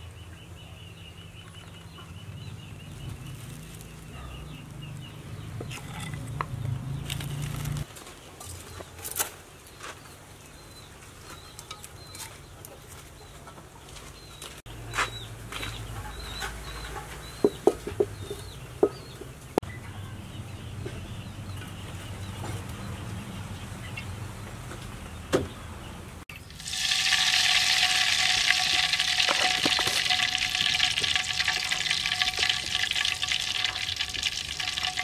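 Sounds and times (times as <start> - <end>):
birds chirping faintly: 0.0 - 26.6
metal wok clanking: 26.4 - 35.0.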